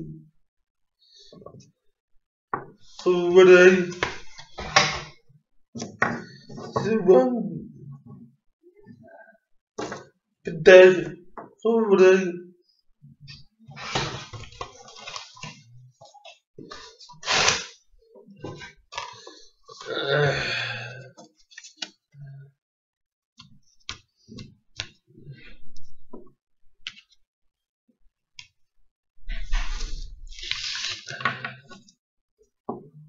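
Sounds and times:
paper packaging crinkling and tearing: 13.8s - 15.6s, 30.3s - 31.2s.

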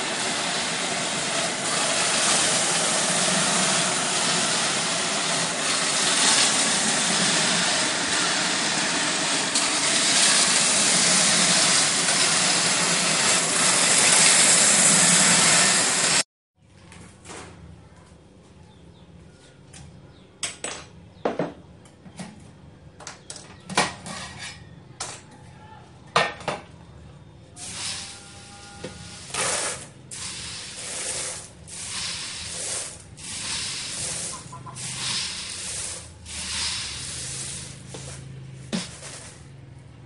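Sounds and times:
coffee beans scraping metal drum: 0.0s - 16.2s, 27.6s - 39.6s.

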